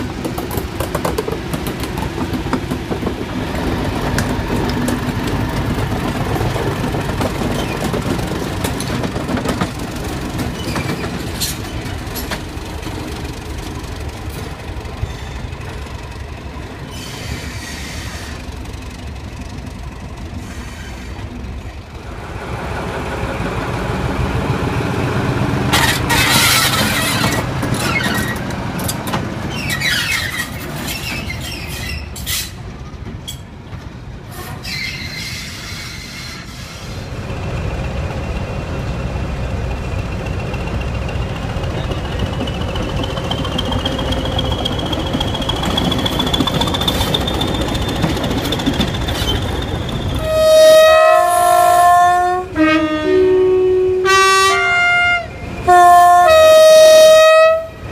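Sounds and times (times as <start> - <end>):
diesel locomotive engines running: 0.0 - 57.9
two-tone locomotive horn blasts: 50.2 - 57.9.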